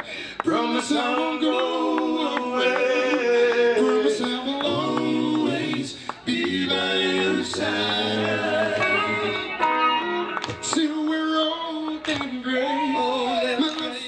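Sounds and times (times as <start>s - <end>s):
men singing into microphones: 0.0s - 9.8s, 10.6s - 14.0s
live soul band playing: 6.6s - 11.0s.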